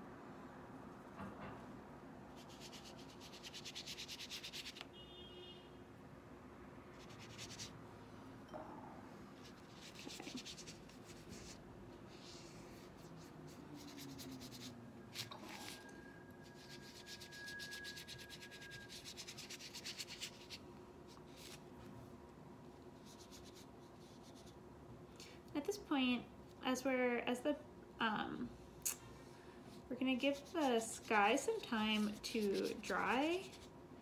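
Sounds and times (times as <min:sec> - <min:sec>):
paintbrush scrubbing on paper: 0:02.4 - 0:04.8, 0:07.0 - 0:07.7, 0:09.4 - 0:21.6, 0:23.0 - 0:24.6, 0:30.1 - 0:33.7.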